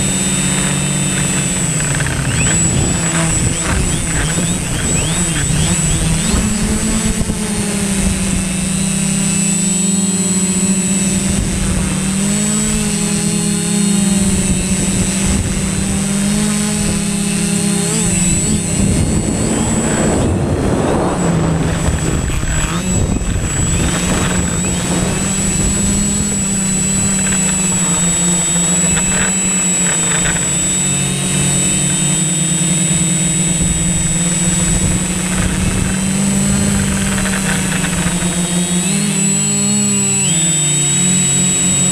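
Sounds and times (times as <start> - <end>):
drone propellers buzzing: 0.0 - 41.9
thin high whine: 0.0 - 41.9
rushing noise: 18.2 - 27.3.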